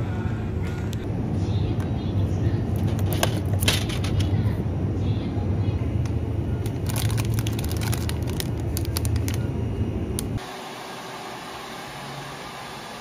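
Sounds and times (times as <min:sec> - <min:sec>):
store background hum: 0:00.0 - 0:13.0
snack packets crinkling: 0:06.6 - 0:09.5.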